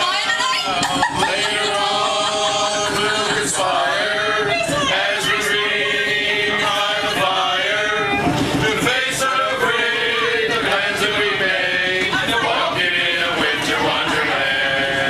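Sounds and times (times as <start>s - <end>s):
group singing a carol: 0.0s - 15.0s.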